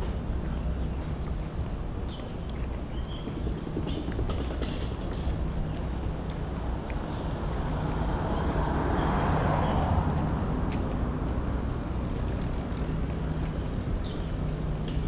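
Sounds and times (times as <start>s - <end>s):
traffic engine hum: 0.0s - 15.0s
vehicle passing close by: 7.5s - 11.4s.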